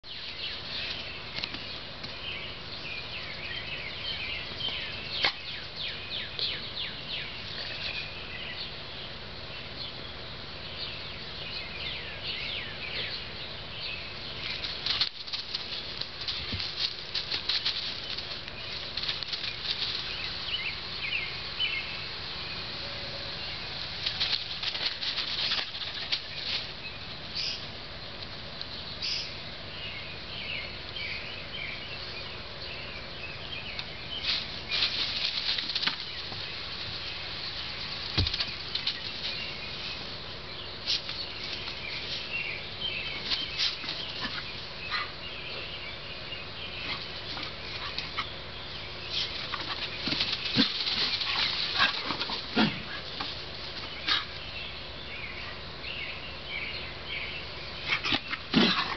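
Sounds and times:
paws scampering over wood shavings: 0.1s - 8.4s, 13.8s - 22.2s, 23.5s - 27.6s, 33.6s - 55.7s, 57.7s - 58.9s.

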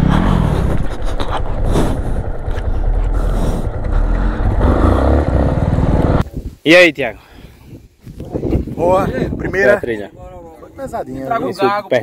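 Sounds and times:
motorcycle engine running: 0.0s - 6.2s.

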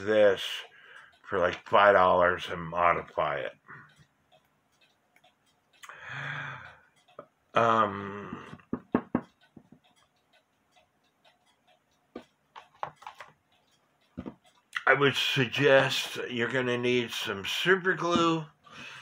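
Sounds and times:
clocks ticking softly: 0.0s - 19.0s
knocks: 8.4s - 9.8s.

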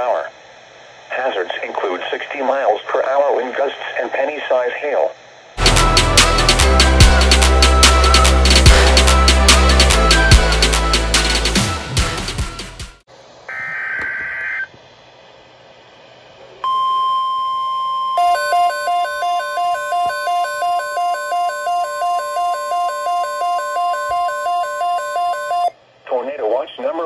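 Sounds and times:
steady alarm tone: 16.6s - 25.8s
warbling two-note alert siren: 18.2s - 25.7s.

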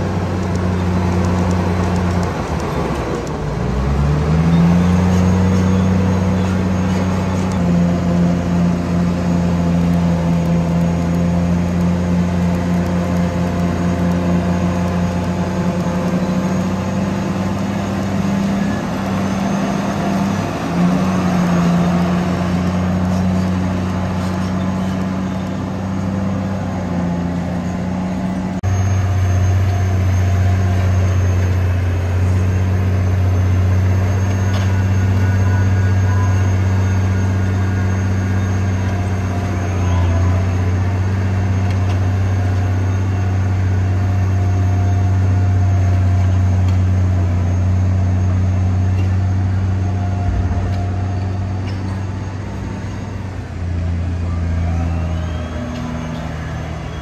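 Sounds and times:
bulldozer diesel engine under load: 0.0s - 57.0s.

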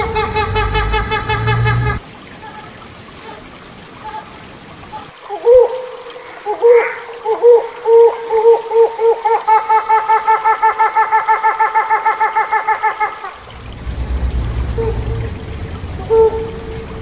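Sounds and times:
hornbill calling: 0.0s - 2.7s, 13.5s - 17.0s
faint hiss: 13.4s - 17.0s.

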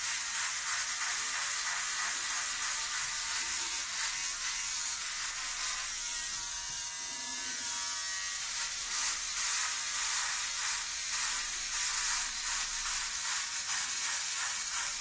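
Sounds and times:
electric shaver buzzing: 0.0s - 15.0s.

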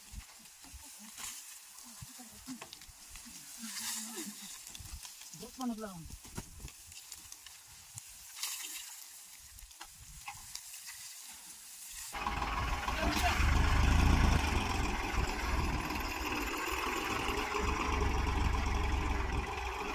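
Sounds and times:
dry stalks rustling and crackling: 0.0s - 19.9s
tractor diesel engine idling: 12.2s - 19.9s.

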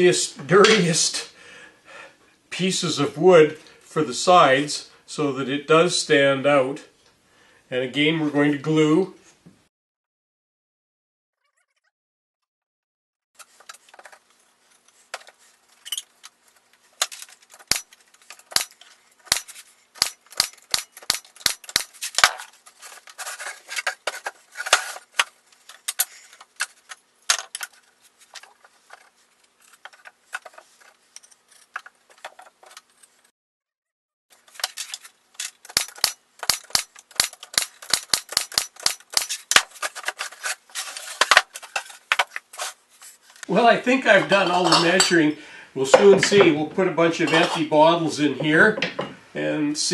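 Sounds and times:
wooden slats knocking and clacking: 48.4s - 49.2s.

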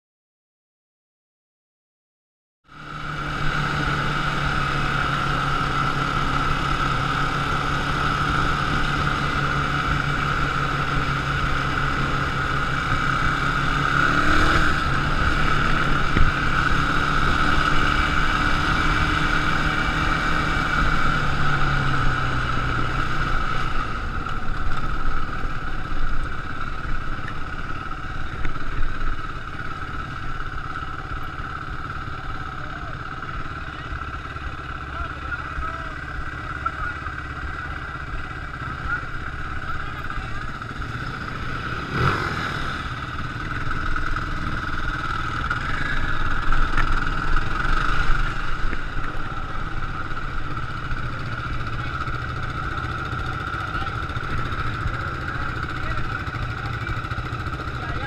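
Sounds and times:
quad bike engine running: 2.7s - 58.0s.

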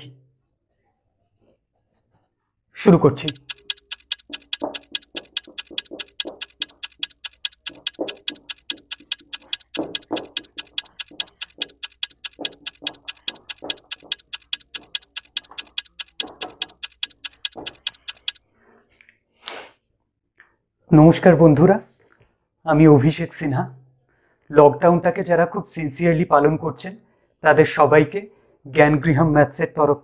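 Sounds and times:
marker writing on whiteboard: 3.2s - 18.4s
stopwatch ticking: 3.2s - 18.4s.

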